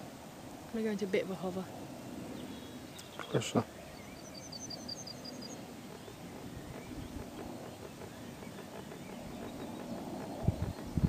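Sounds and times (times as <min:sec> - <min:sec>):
bird chirping: 0:02.3 - 0:11.0
distant model plane motor drone: 0:02.4 - 0:11.0
wind rumble: 0:05.5 - 0:11.0.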